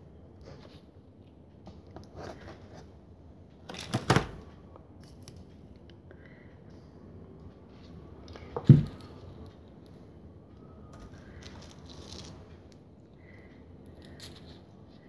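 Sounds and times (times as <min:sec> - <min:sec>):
craft materials rustling and clinking: 0:11.0 - 0:12.5.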